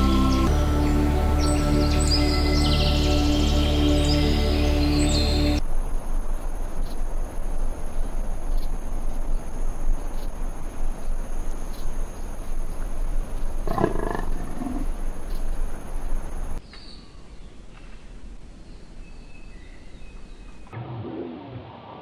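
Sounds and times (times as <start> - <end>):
tiger growling: 13.6 - 15.0.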